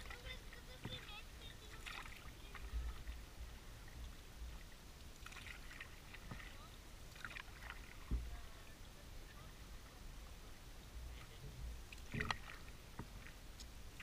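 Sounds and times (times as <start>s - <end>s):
paddle splashes and drips: 0.0s - 14.0s
dull knock on canoe: 8.0s - 8.4s.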